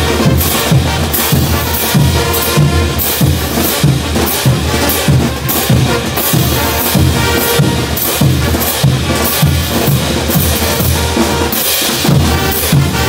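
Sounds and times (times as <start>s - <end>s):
brass band playing: 0.0s - 13.0s.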